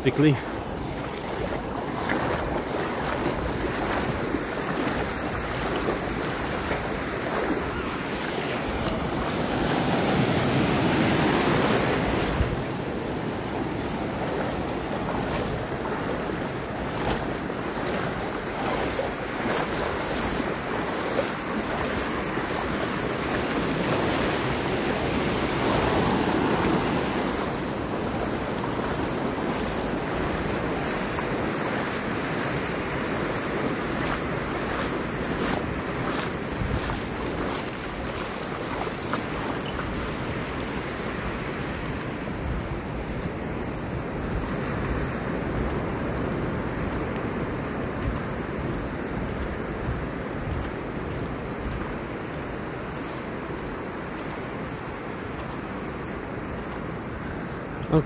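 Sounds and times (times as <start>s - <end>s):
small waves breaking on shore: 0.0s - 58.0s
wind buffeting microphone: 32.4s - 52.8s.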